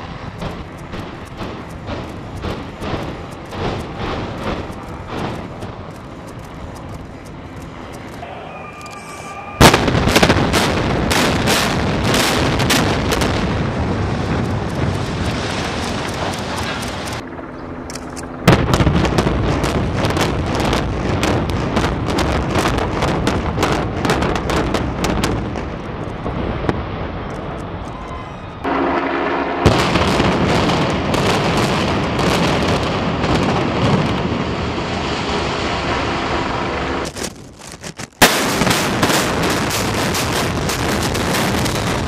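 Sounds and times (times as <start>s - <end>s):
building collapsing rumble: 0.0s - 17.2s
demolition charges cracking: 9.6s - 17.2s.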